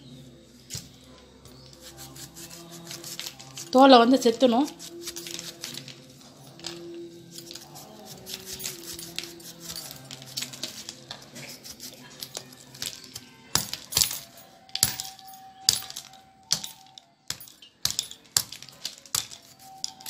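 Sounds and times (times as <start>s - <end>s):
faint music: 0.0s - 20.0s
knife slicing fruit skin: 1.8s - 3.7s.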